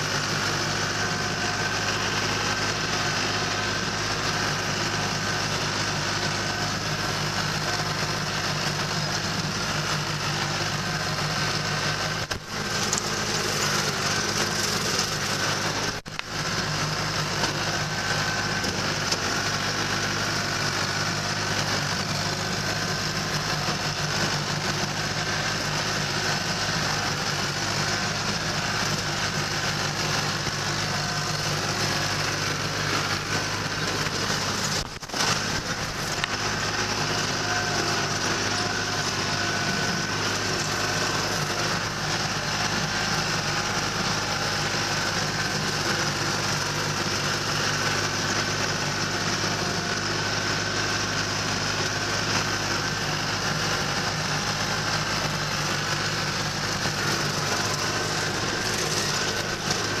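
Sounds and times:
tractor engine running: 0:00.0 - 1:00.0.

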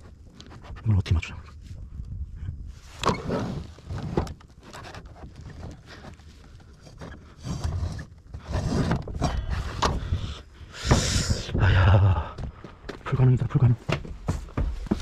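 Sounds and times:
wood scraping and rubbing: 0:02.8 - 0:11.6.

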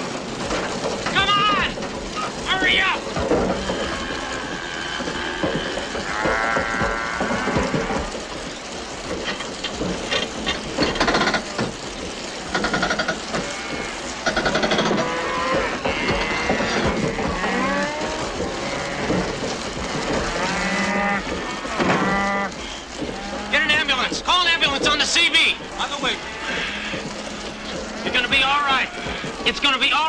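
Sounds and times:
cattle mooing and bellowing: 0:01.4 - 0:08.5, 0:12.6 - 0:24.1, 0:24.7 - 0:29.6.

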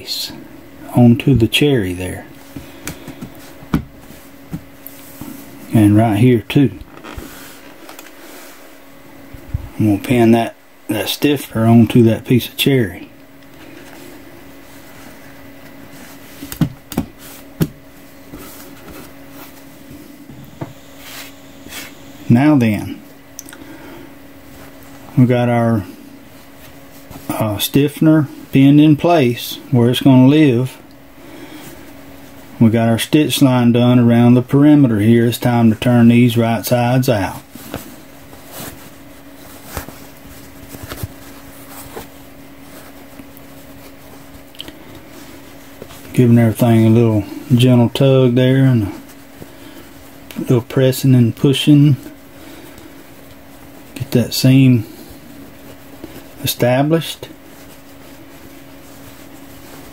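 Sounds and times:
steady low hum: 0:00.0 - 0:59.9
fabric rustling and crinkling: 0:02.4 - 0:06.2, 0:06.8 - 0:09.8, 0:13.2 - 0:22.0, 0:24.2 - 0:25.1, 0:26.1 - 0:27.4, 0:36.8 - 0:50.5, 0:51.9 - 0:54.1, 0:55.0 - 0:56.6, 0:57.2 - 0:59.9
hands handling fabric knocks and clicks: 0:16.4 - 0:19.1, 0:39.5 - 0:43.5.

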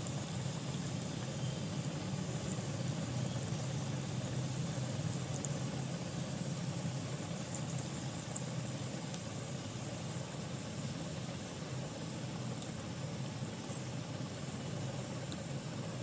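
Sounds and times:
spices sizzling in hot oil: 0:00.0 - 0:11.5
steady low hum: 0:00.0 - 0:16.0.

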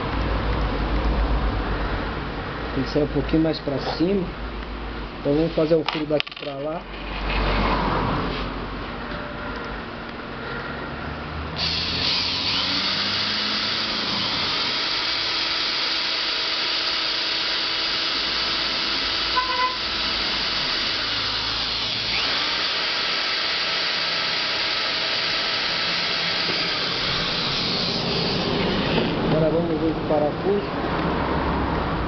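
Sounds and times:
cordless drill boring plastic: 0:11.6 - 0:29.4.

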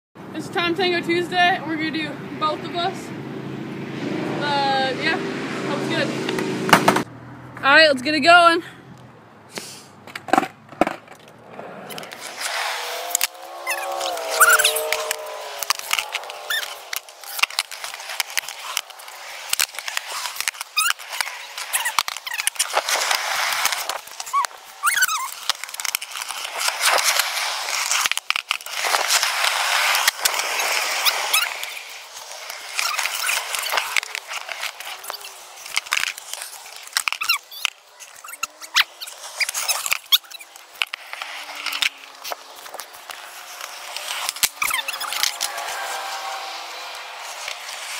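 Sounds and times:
skateboard wheels rolling on concrete: 0:00.2 - 0:47.9
skateboard clacking on ground: 0:10.0 - 0:47.9
short squeaks: 0:11.5 - 0:19.0, 0:20.1 - 0:25.6, 0:30.7 - 0:31.8, 0:32.7 - 0:40.6, 0:43.4 - 0:46.1.

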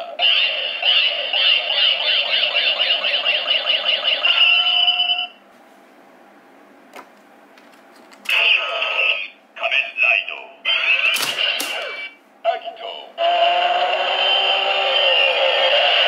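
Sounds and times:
toy belt electronic synthetic tones: 0:00.2 - 0:05.4.

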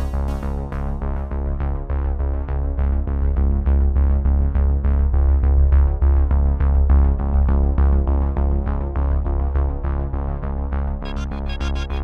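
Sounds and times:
electronic music: 0:00.0 - 0:01.1, 0:11.0 - 0:12.0.

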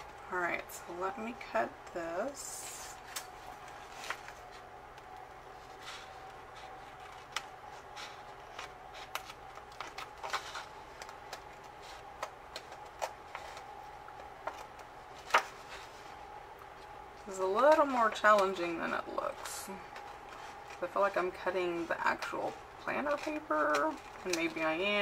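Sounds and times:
faint steady hum: 0:00.0 - 0:25.0
scissors snipping paper: 0:05.8 - 0:15.8, 0:16.8 - 0:25.0.

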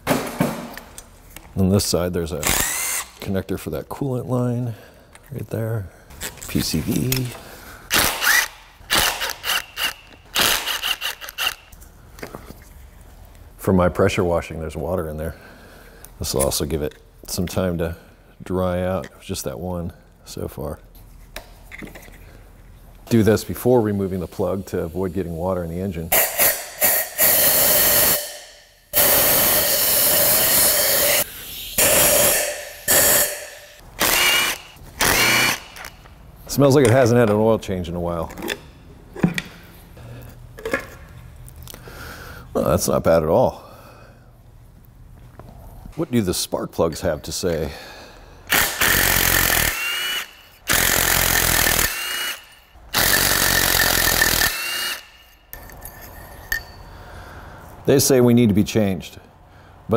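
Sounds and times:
cordless ratchet whirring: 0:02.4 - 0:03.2, 0:07.9 - 0:11.7, 0:34.0 - 0:36.0, 0:48.5 - 0:55.8
impact wrench hammering: 0:31.8 - 0:35.9, 0:48.5 - 0:55.8
air blow gun blasting: 0:48.5 - 0:52.4.

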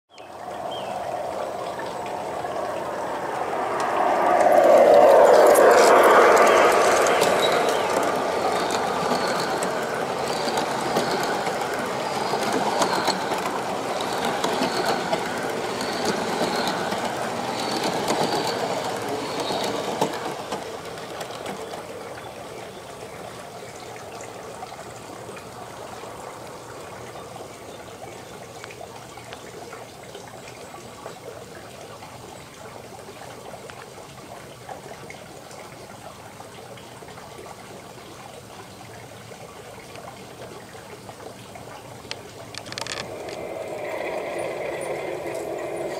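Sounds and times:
model train wheels clattering: 0:07.2 - 0:21.9, 0:42.5 - 0:45.9.

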